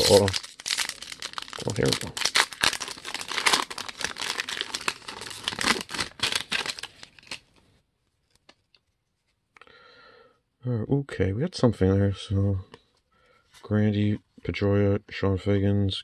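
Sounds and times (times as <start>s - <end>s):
foil wrapper tearing and crinkling: 0.0s - 7.6s.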